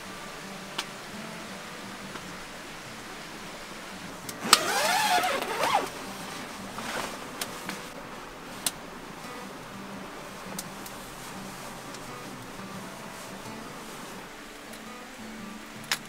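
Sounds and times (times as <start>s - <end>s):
tent zipper rasping: 4.4s - 6.0s, 6.8s - 7.3s.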